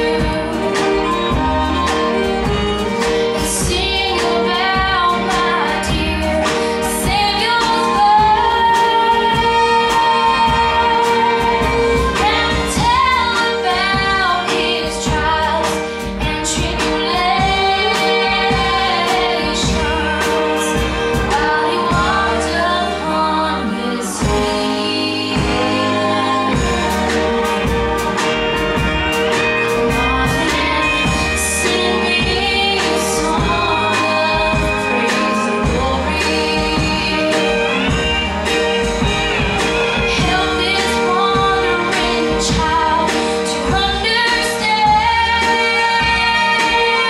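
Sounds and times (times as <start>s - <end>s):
country band playing: 0.0s - 47.0s
girl singing: 3.4s - 27.1s.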